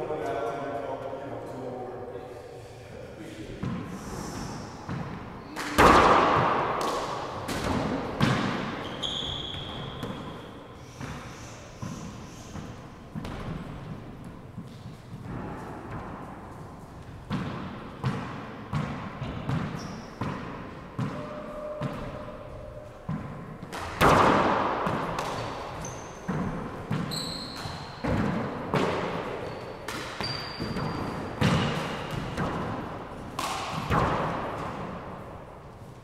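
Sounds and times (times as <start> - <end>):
shoe squeaks on hardwood: 8.8 - 10.4, 19.8 - 20.2, 25.4 - 28.0, 29.4 - 31.2.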